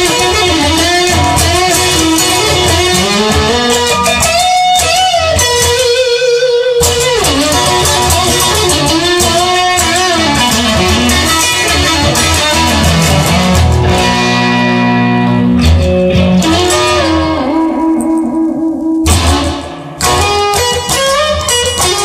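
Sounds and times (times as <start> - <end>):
electric guitar lead line: 0.0 - 22.0
bass notes: 9.2 - 20.9.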